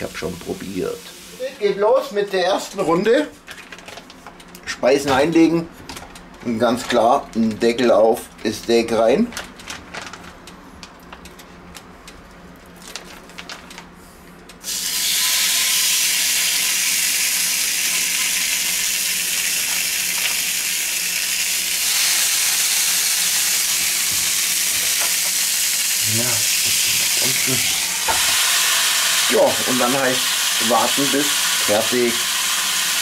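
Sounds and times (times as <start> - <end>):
steaks sizzling on a grill: 14.7 - 33.0.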